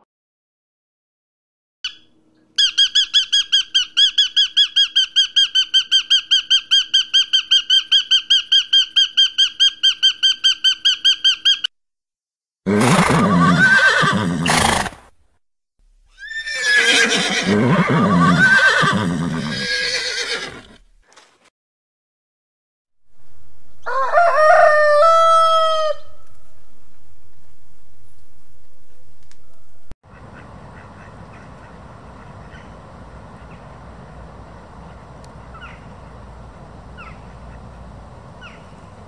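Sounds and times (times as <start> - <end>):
bird calling rapidly: 1.8 - 11.7, 30.1 - 39.0
horse whinnying: 12.7 - 15.0, 16.1 - 20.8.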